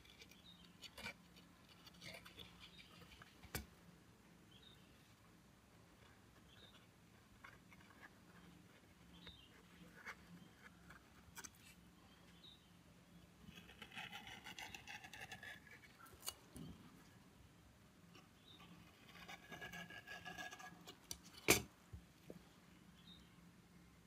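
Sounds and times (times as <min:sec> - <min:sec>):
scratchy scraping: 0:00.0 - 0:03.5.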